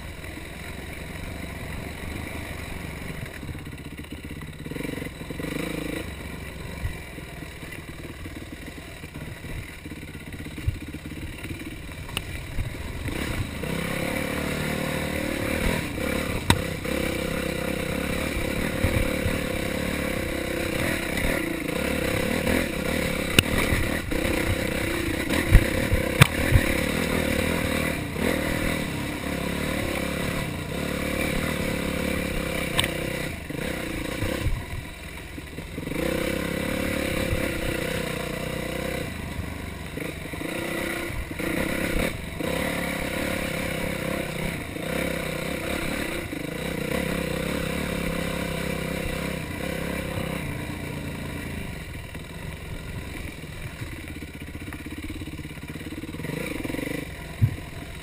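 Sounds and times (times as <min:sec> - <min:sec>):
motorcycle engine revving: 0:00.0 - 0:58.0
knocks and clatter from bike: 0:15.7 - 0:17.1, 0:22.5 - 0:27.1, 0:52.1 - 0:58.0.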